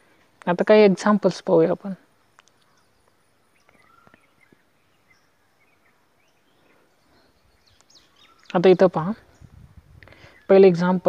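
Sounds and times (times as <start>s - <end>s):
faint bird chirps: 0.1s - 11.0s
faint clicks: 2.3s - 4.6s, 7.7s - 8.6s.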